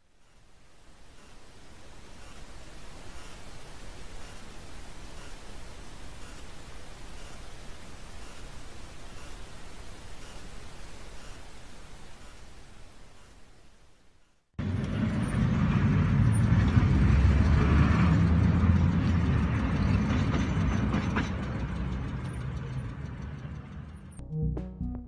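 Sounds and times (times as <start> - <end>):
vehicle road rumble: 14.6 - 24.2
music: 24.2 - 25.0.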